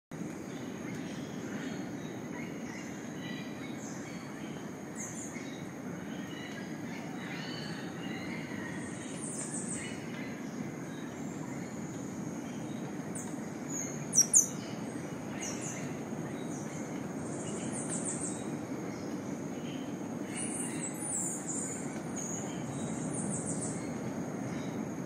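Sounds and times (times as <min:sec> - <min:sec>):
birds chirping in trills: 0:12.5 - 0:16.8
loud sharp bird chirps: 0:14.1 - 0:14.6.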